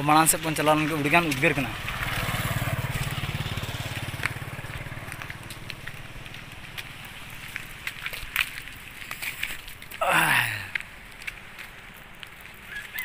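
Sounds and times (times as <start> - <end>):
motorcycle engine running: 0.5 - 8.1.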